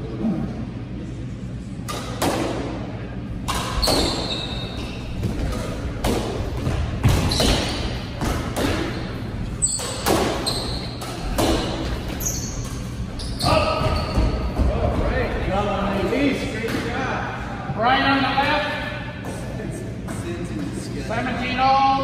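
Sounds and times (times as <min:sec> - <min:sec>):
shoes squeaking on hardwood floor: 0:03.8 - 0:05.6, 0:08.8 - 0:14.7
squash ball cracks off racquets and walls: 0:05.2 - 0:09.1, 0:09.8 - 0:12.2.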